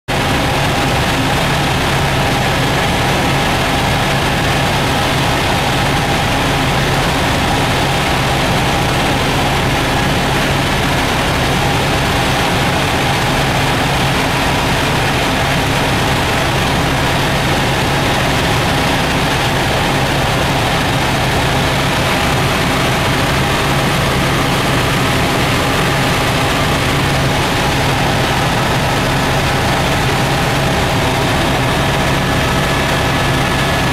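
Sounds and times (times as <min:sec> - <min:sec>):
helicopter drone in cabin: 0:00.1 - 0:33.9
high engine whine: 0:00.1 - 0:33.9.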